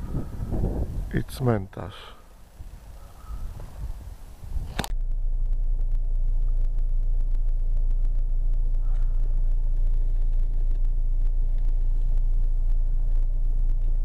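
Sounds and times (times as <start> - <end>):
sharp click: 4.7 - 5.0
car driving rumble inside cabin: 4.9 - 14.0.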